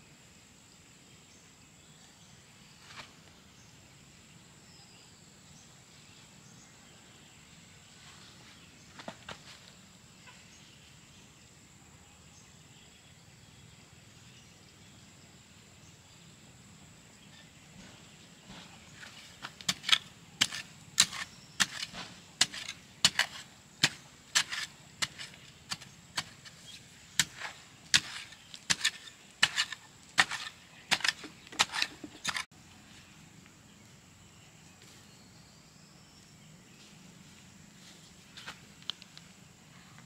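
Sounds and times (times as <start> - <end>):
hoe chopping into soil: 17.8 - 32.5.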